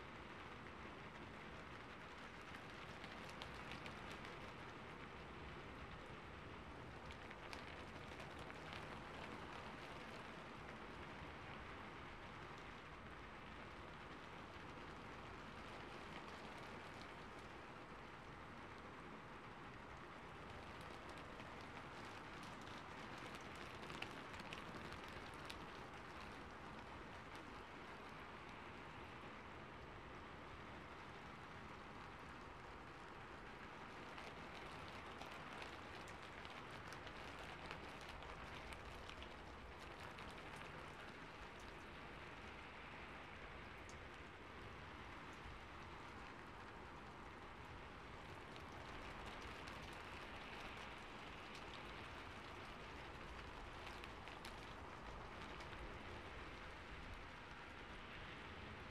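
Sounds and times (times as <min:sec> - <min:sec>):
soft rain: 0:00.0 - 0:58.9.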